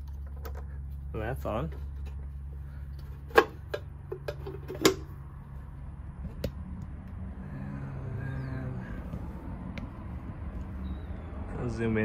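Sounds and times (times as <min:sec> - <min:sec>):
steady low hum: 0:00.0 - 0:12.0
metal cover snapping shut: 0:03.3 - 0:05.1.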